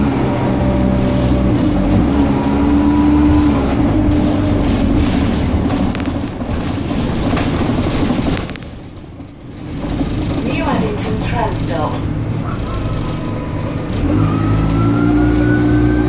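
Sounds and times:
bus engine and gearbox whine: 0.0s - 16.0s
interior fittings rattling: 3.3s - 14.2s.

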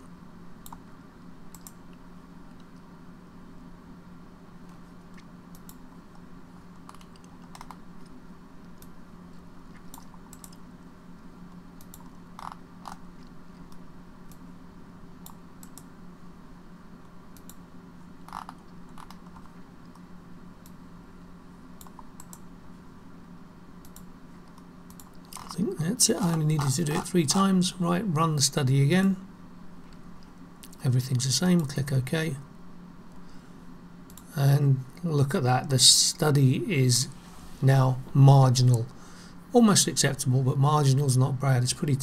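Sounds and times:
low electrical hum: 0.0s - 42.0s
mouse and keyboard clicks: 6.8s - 7.8s, 9.7s - 10.6s.

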